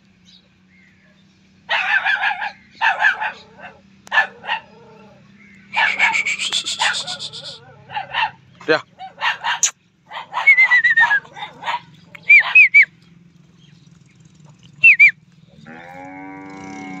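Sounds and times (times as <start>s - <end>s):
birds chirping: 0.2s - 17.0s
rising and falling bird calls: 4.4s - 7.7s, 9.4s - 12.9s, 14.8s - 15.2s.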